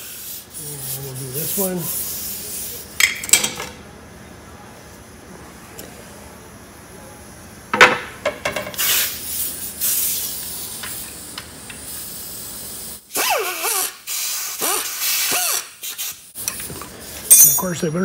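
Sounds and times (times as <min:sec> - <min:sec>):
pneumatic cutting tool hissing: 0:08.8 - 0:11.2, 0:11.8 - 0:16.3
sharp metal clank: 0:17.3 - 0:17.9.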